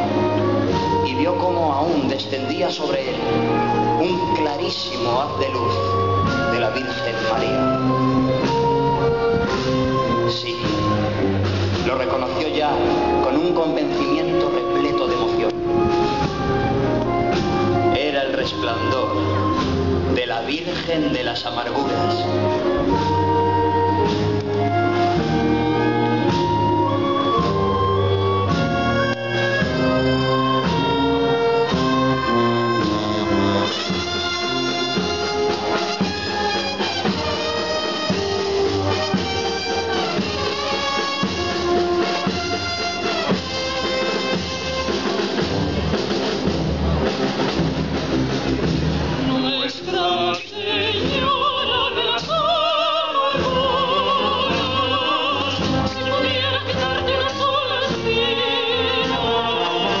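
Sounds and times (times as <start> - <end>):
brass band playing slow chords: 0.0 - 52.6, 53.2 - 60.0
operatic singing voice: 31.8 - 34.6, 49.2 - 60.0.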